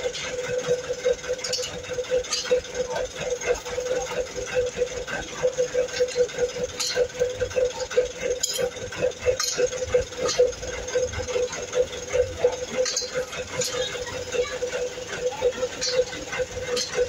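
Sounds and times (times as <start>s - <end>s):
small motor pulsing hum: 0.0s - 17.0s
metallic clinks of pipe: 1.3s - 2.9s, 5.9s - 11.6s, 12.4s - 13.9s, 15.6s - 17.0s.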